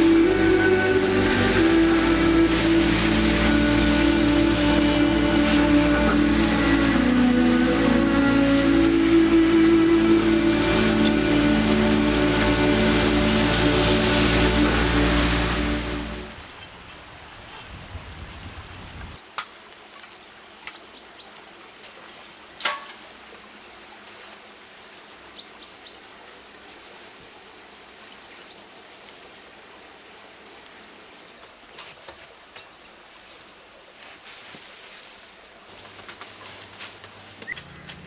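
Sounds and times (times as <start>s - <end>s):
steady outdoor hiss: 0.0s - 38.0s.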